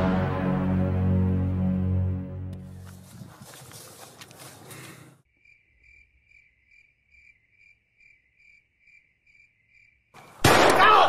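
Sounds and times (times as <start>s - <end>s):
cricket chirping: 5.2s - 10.4s.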